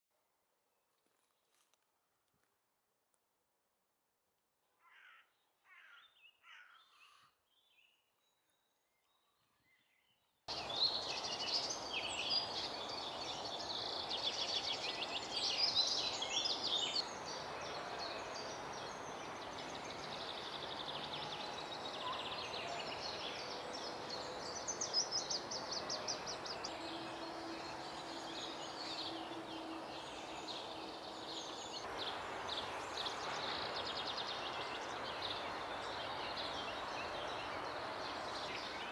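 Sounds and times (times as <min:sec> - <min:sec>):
songbirds singing: 0:04.9 - 0:38.9
steady background noise: 0:10.5 - 0:38.9.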